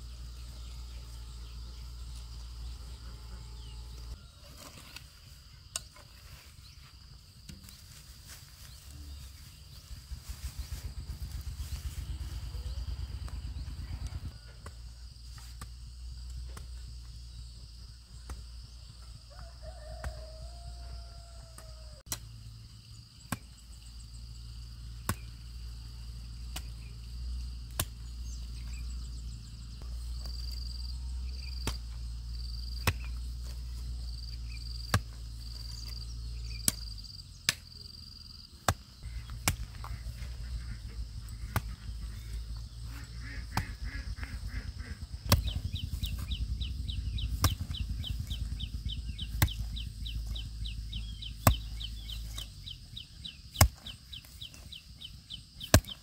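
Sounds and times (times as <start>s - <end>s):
low rumble: 8.8s - 17.5s, 39.0s - 53.5s
sharp chopping knocks: 38.7s - 40.0s, 45.2s - 46.4s, 47.2s - 52.5s, 55.6s - 56.0s
bird calling: 39.0s - 56.0s.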